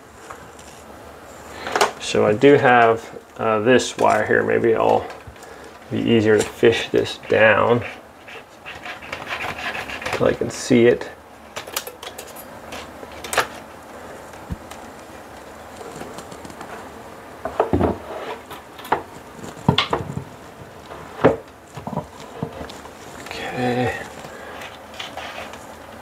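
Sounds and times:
faint scraping and rubbing: 17.9 - 18.6, 20.9 - 25.9.

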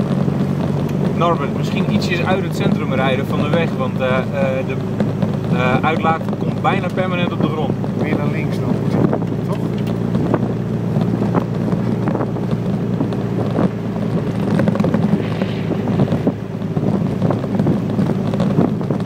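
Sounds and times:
car engine and road drone: 0.0 - 19.0
wind noise: 0.0 - 19.0
knocks and thumps: 4.8 - 19.0.

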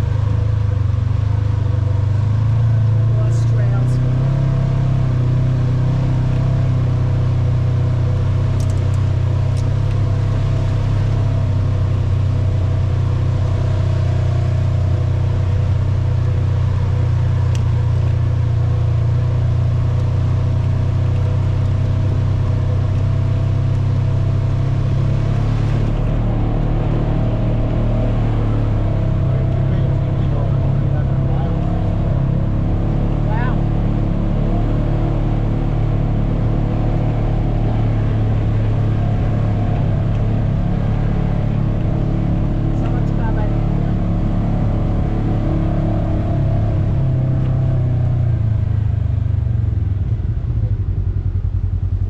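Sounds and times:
atv engine droning: 0.0 - 52.0.

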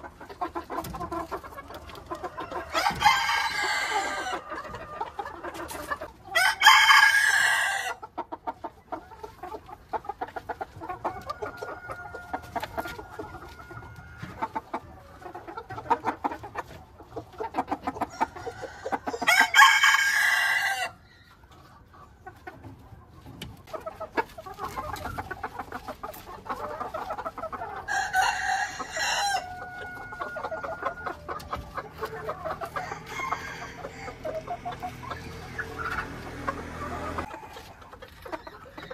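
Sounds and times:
chickens clucking: 0.0 - 38.9
roosters crowing: 2.0 - 8.1, 10.9 - 15.1, 17.9 - 21.2, 27.6 - 37.9.

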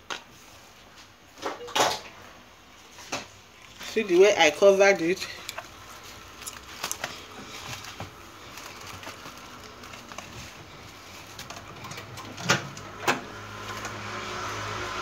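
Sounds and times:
faint handling noise: 2.8 - 12.8.

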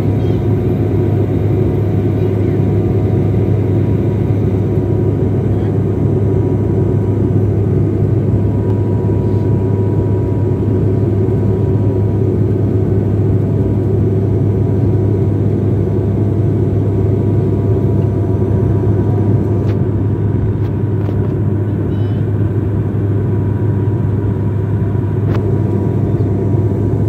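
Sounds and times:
low cabin drone: 0.0 - 27.0.

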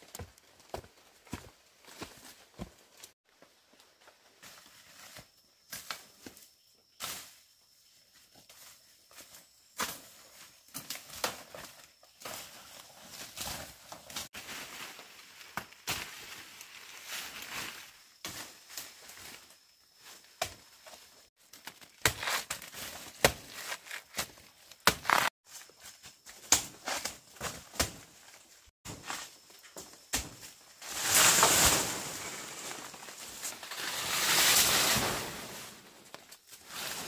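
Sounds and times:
dry leaves rustling and crunching: 12.6 - 17.9.

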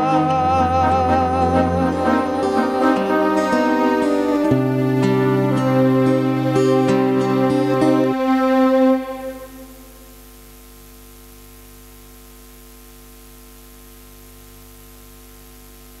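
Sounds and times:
electronic keyboard chord: 0.0 - 10.0
electrical hum with hiss: 0.0 - 16.0.

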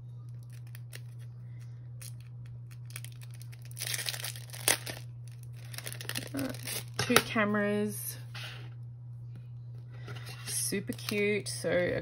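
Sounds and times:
plastic packet crinkling and tearing: 0.3 - 1.3, 2.0 - 7.0.

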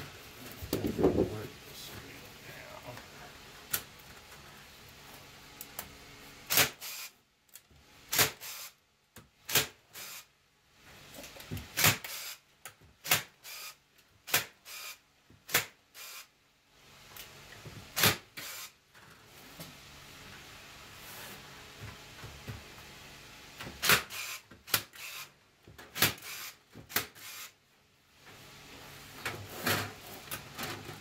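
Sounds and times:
electric staple gun firing: 6.5 - 7.1, 8.1 - 8.8, 9.5 - 10.3, 11.7 - 12.4, 13.0 - 16.3, 18.0 - 18.7, 23.8 - 25.3, 25.9 - 27.6.

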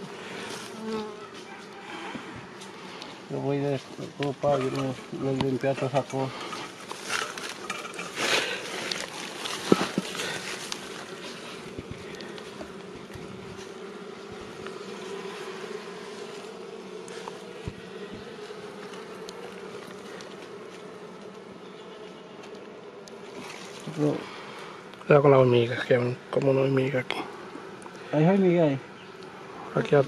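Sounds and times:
honeybees buzzing: 0.0 - 30.0
handling rustling and knocks: 3.8 - 14.7.

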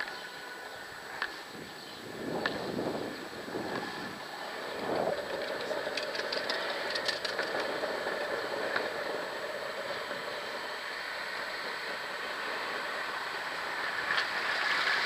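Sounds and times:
longboard wheels rolling on asphalt: 0.0 - 15.0
light clicks and rattles: 4.9 - 7.7.

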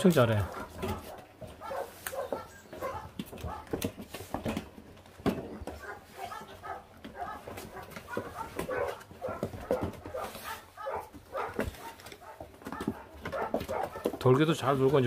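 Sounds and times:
puppies whining and growling: 0.5 - 3.7
clicks and scuffles: 0.5 - 15.0.

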